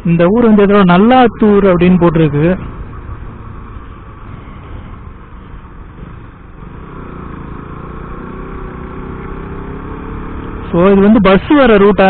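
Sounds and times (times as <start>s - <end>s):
motorcycle engine running: 2.6s - 11.2s.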